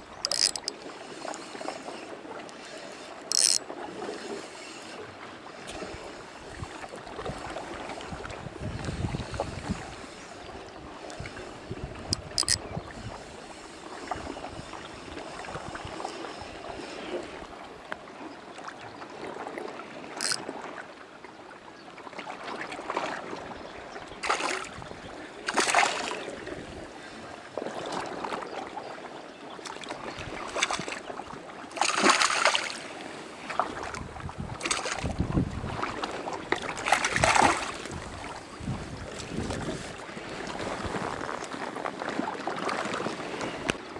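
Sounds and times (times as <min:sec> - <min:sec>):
sea water lapping against rocks: 0:00.0 - 0:20.9, 0:22.1 - 0:43.9
wind on microphone: 0:05.6 - 0:17.6, 0:23.4 - 0:27.0, 0:33.5 - 0:43.9.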